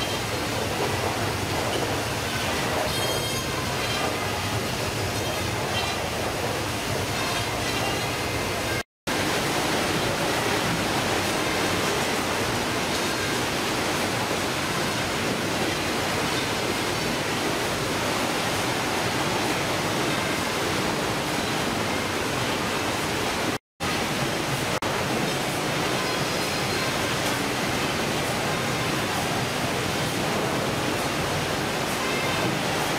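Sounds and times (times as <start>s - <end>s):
processing machinery running: 0.0s - 23.3s
water rushing: 0.0s - 32.9s.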